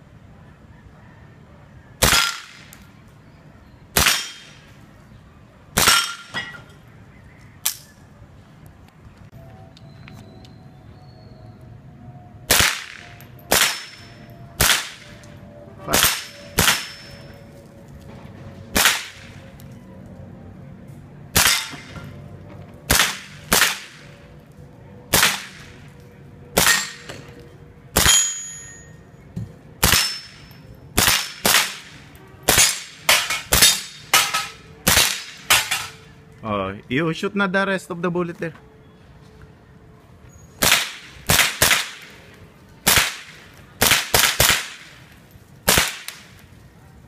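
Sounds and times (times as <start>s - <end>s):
rifle shots with short echo: 22.9s - 24.0s, 42.8s - 44.9s, 45.7s - 46.4s.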